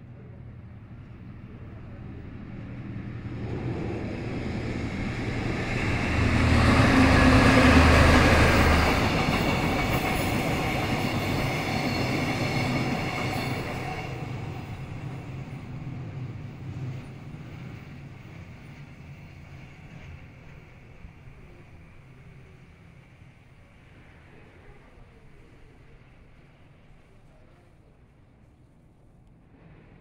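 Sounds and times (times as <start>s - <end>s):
diesel locomotive passing: 0.0s - 30.0s
train wheels rolling: 3.3s - 24.2s.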